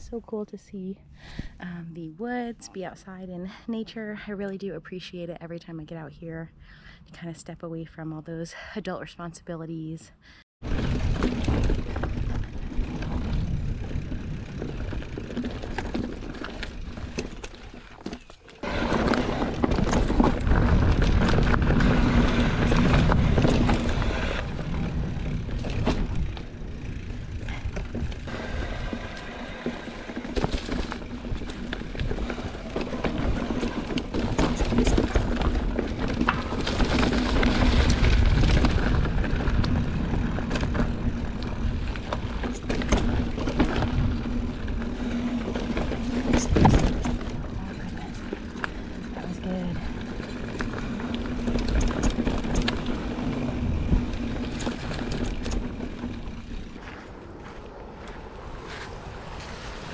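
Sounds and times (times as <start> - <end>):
wind buffeting microphone: 10.6 - 17.2, 18.6 - 59.9
bike rattling over rocks: 10.6 - 57.0
bike tyres rolling on dirt: 10.6 - 59.9.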